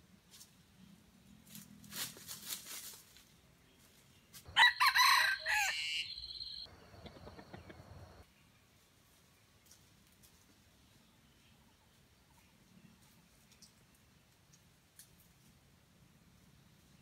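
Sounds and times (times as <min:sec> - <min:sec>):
rooster crowing: 0:04.5 - 0:06.7.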